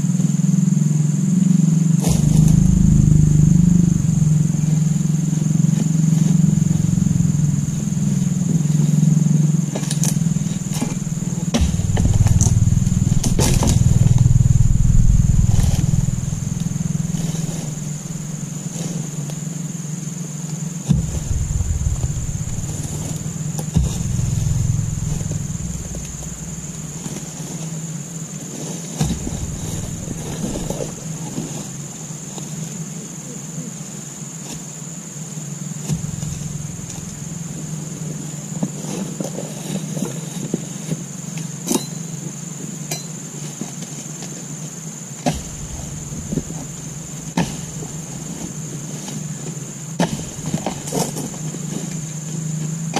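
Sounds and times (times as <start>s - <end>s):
steady low hum: 0.8s - 28.2s, 29.0s - 32.4s, 35.4s - 38.8s, 45.3s - 52.3s
sharp knocks: 2.1s - 4.6s, 10.0s - 18.5s, 20.9s - 27.2s, 29.0s - 31.1s, 35.9s - 37.9s, 45.3s - 48.5s
high-pitched drone: 2.1s - 5.4s, 10.2s - 18.6s, 20.9s - 27.2s, 29.2s - 31.1s, 36.0s - 38.0s, 45.3s - 48.2s.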